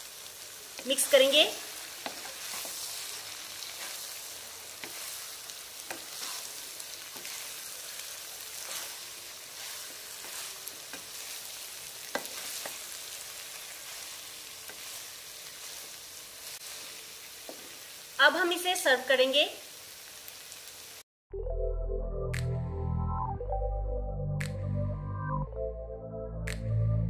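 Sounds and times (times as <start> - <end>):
frying sizzle: 0.0 - 21.0
wooden spatula scraping wok: 0.7 - 18.0
spatula knocking pan: 2.0 - 3.0, 5.8 - 6.5, 12.0 - 12.9.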